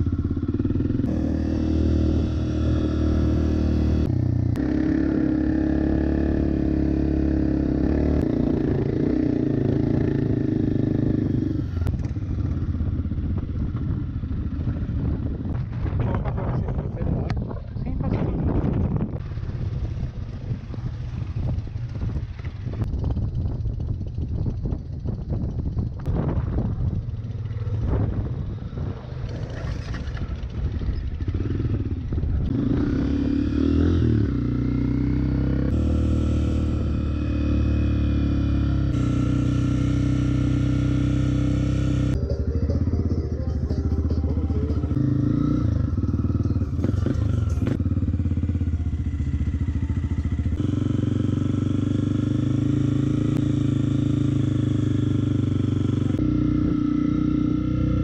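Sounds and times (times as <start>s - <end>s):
dirt bike engine revving: 0.0s - 12.7s, 27.5s - 58.0s.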